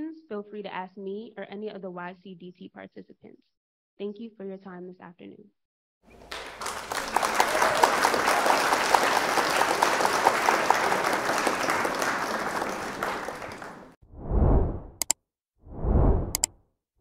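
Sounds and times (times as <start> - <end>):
roomful of people applauding: 6.1 - 14.0.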